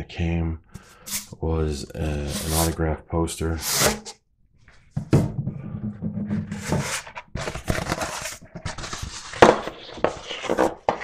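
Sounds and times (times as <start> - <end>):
paper poster rustling: 2.0 - 2.8, 6.6 - 11.0.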